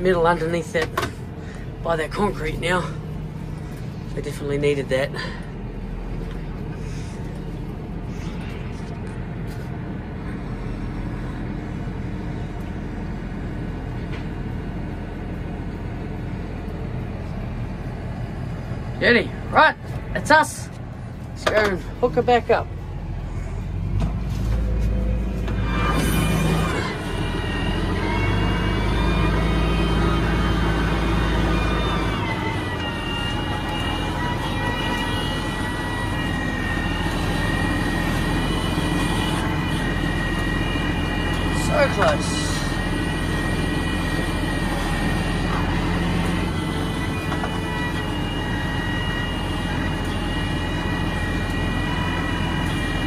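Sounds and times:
high whine: 0.0 - 53.0
tractor diesel engine droning: 0.0 - 53.0.

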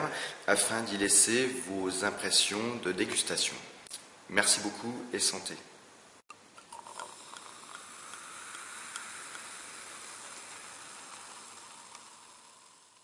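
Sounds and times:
champagne fizzing: 6.7 - 13.0.

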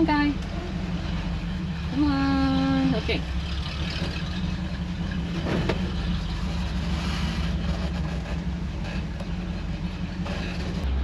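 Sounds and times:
low engine drone: 0.0 - 11.0
road noise: 0.0 - 11.0.

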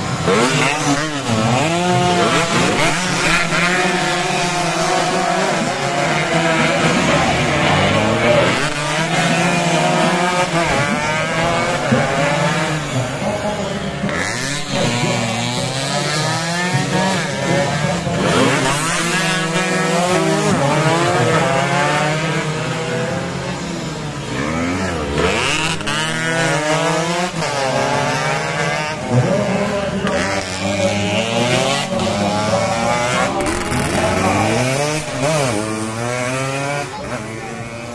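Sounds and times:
motorcycles revving past: 0.0 - 37.9.

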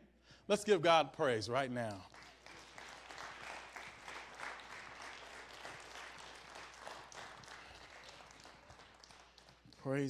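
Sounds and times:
crowd applauding: 2.0 - 10.0.

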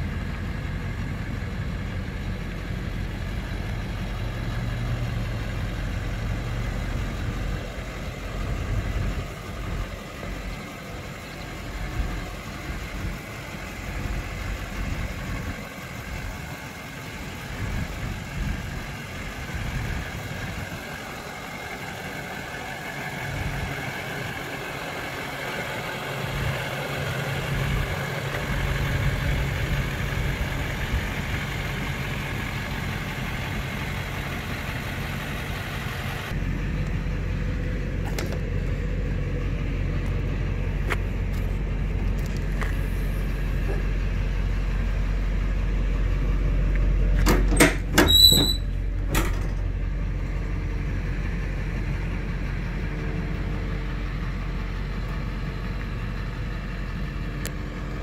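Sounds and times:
diesel engine idling: 0.0 - 58.0
tailgate latch clicks and squeak: 47.2 - 49.5.

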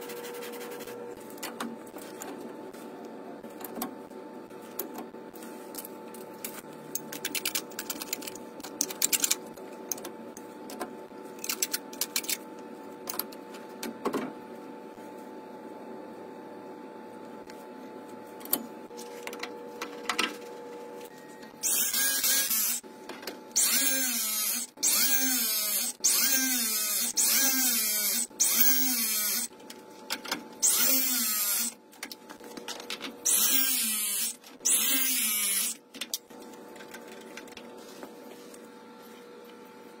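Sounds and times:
cordless press tool whirring: 21.6 - 22.8, 30.6 - 31.8, 33.2 - 35.8.

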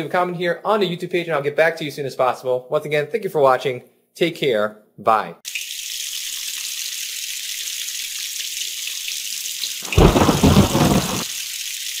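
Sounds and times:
rumbling thunderclap: 9.8 - 11.3
rain hissing: 9.8 - 11.6.

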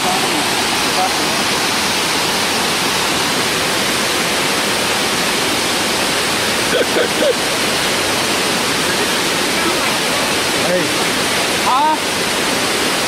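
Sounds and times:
waterfall rushing into pool: 0.0 - 13.0.

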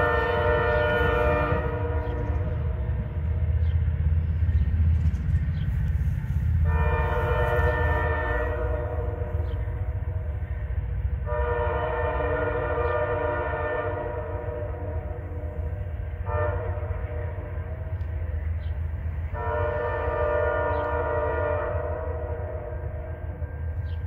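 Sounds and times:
locomotive air horn blasts: 0.0 - 2.8, 6.6 - 10.2, 11.2 - 18.0, 19.3 - 23.4
train rumble: 0.0 - 24.0.

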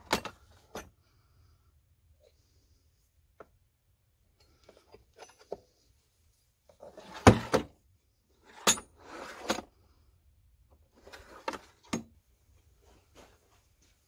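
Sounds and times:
metal drawers sliding and clunking: 6.8 - 7.7, 8.5 - 9.6.

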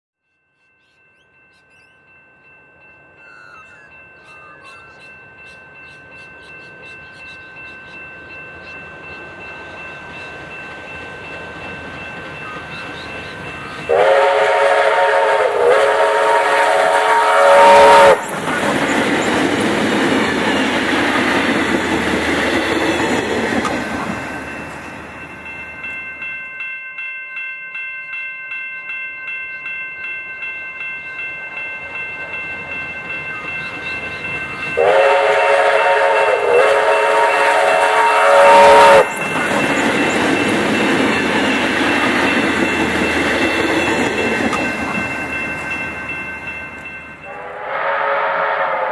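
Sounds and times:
locomotive exhaust and wheels: 0.4 - 48.9
steam locomotive whistle: 12.4 - 18.3, 34.8 - 39.2, 47.3 - 48.9.

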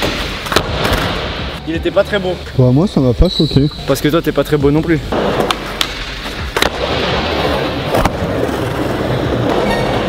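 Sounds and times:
skateboard wheels rolling: 5.1 - 10.0.

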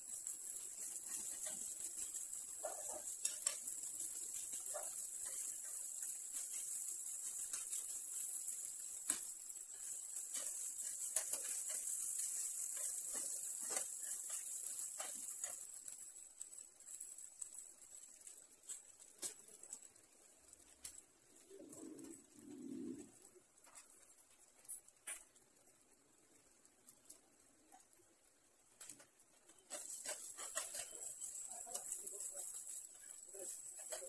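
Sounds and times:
rice sizzling in a frying pan: 0.0 - 34.0
metal spoon scraping a pan: 0.4 - 16.2, 29.5 - 34.0.

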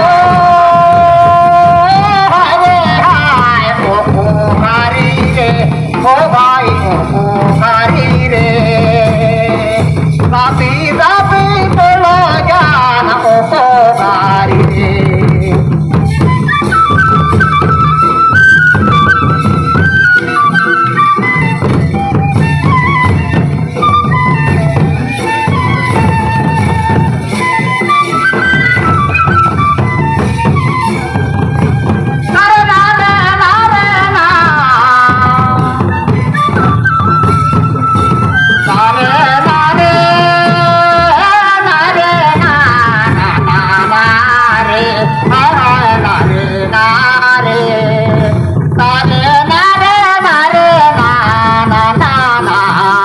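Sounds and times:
people singing: 0.0 - 9.9, 10.5 - 15.7, 38.7 - 53.0
folk melody: 0.0 - 53.0
large drums beating: 0.0 - 53.0.

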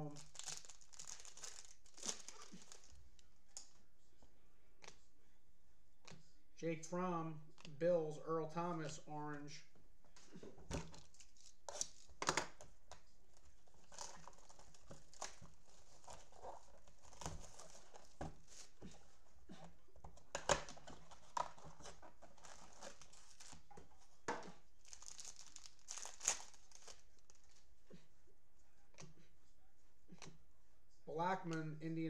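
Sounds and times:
packaging crinkling and tearing: 0.1 - 3.3, 10.9 - 12.6, 13.3 - 18.7, 20.2 - 27.6.

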